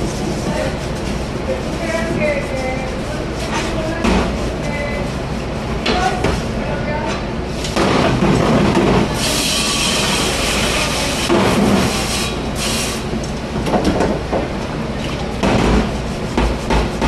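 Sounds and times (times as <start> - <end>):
water spraying with a hiss: 9.1 - 13.1.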